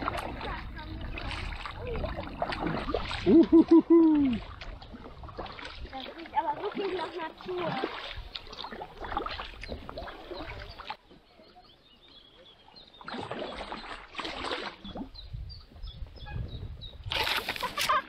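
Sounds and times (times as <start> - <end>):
paddle splashes: 0.0 - 15.8, 17.0 - 18.0
leaves and branches scraping boat: 17.1 - 18.0.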